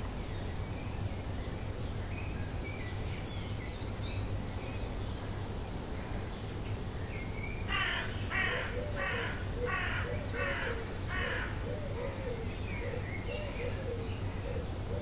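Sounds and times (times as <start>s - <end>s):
harsh bird cawing: 7.7s - 11.6s.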